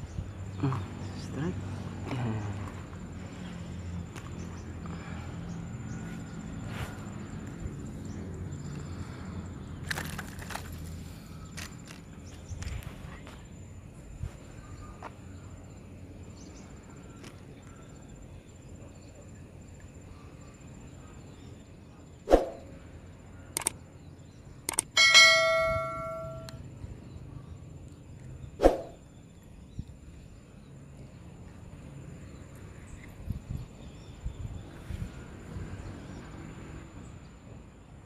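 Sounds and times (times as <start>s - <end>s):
faint outdoor background: 0.0s - 38.0s
bright bell chime: 25.0s - 26.6s.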